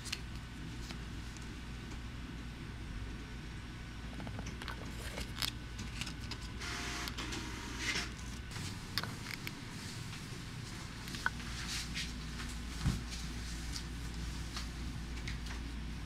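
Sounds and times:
steady low hum: 0.0s - 16.0s
book pages rustling: 4.7s - 6.6s.

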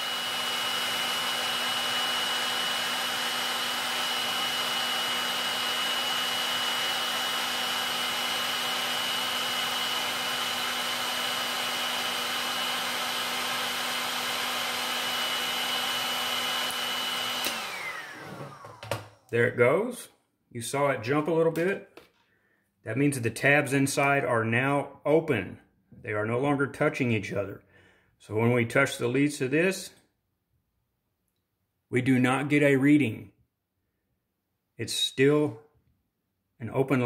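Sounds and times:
heat gun blowing with whine: 0.0s - 19.4s.

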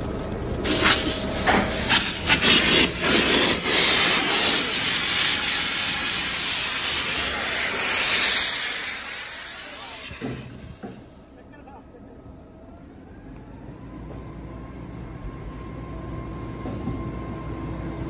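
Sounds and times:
compressed air hissing from hose: 0.6s - 11.2s.

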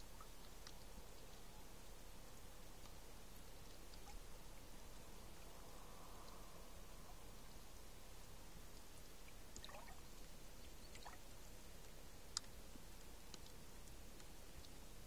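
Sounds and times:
water trickling and dripping: 8.5s - 15.0s
water gurgles: 9.2s - 10.2s, 10.9s - 11.3s
small clicks: 11.8s - 12.6s, 13.3s - 14.8s.

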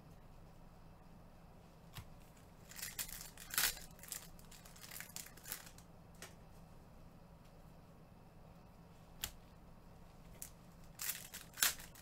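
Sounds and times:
card pack wrapper crinkling: 2.6s - 5.8s, 10.3s - 12.0s.

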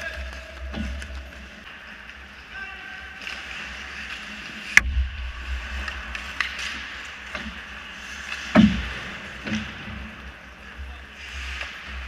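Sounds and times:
hockey sticks and puck clacking: 0.0s - 2.5s, 5.6s - 12.0s
ice rink noise: 0.0s - 12.0s.

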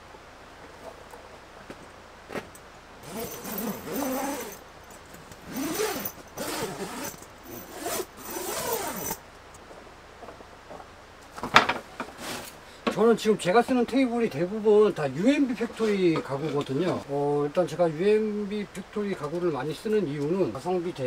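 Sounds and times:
tent zipper being pulled: 3.0s - 4.6s, 5.4s - 9.2s.

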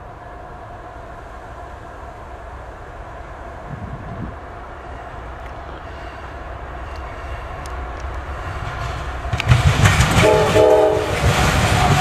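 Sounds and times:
train engine and wheel rumble: 0.0s - 12.0s
train horn: 10.2s - 12.0s.

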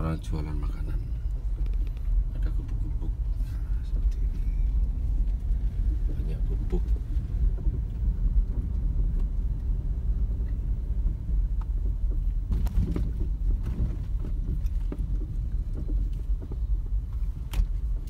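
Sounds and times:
car engine and tyres rumbling: 0.0s - 18.0s
short knocks or rattles: 11.7s - 16.8s.

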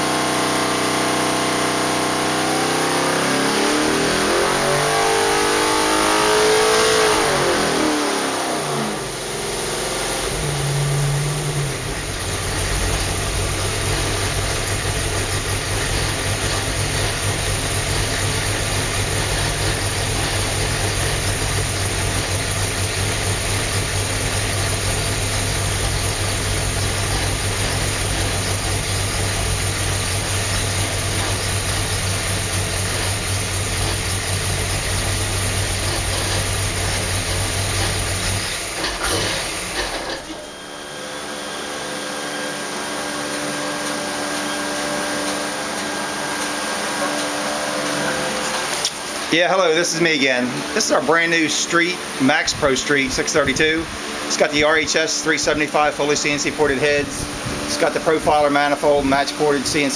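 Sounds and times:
engine running on dyno: 0.0s - 59.9s
fan-like hum: 40.3s - 59.9s.

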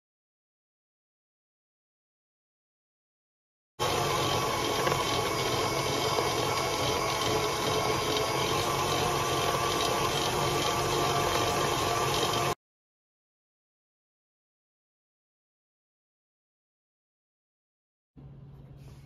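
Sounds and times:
stand mixer whisking cream: 3.8s - 12.6s.

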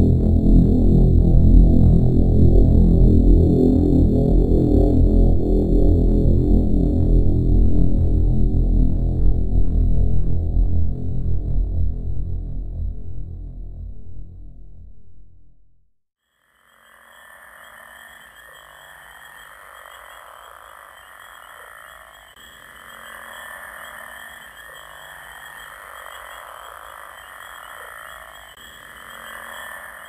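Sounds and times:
frogs calling in chorus: 16.3s - 30.0s.

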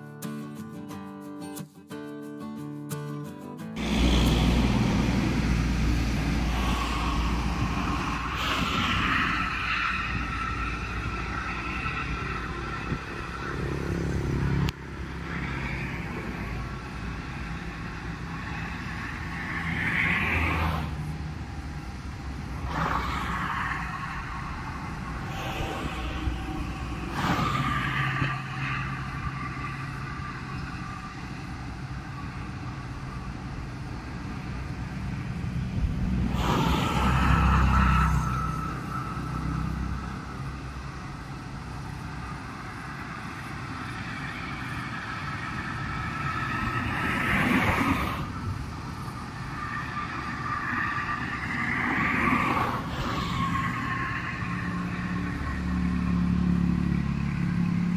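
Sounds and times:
cars passing on concrete road: 0.0s - 57.9s
deep engine sound: 3.8s - 18.0s.

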